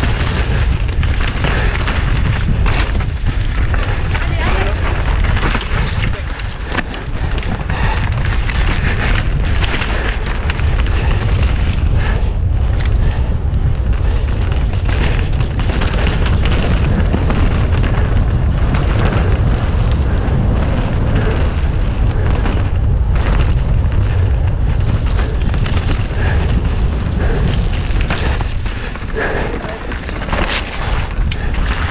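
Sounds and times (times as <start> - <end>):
bike rattling over rough ground: 0.0 - 31.9
wind rumble on microphone: 0.0 - 31.9.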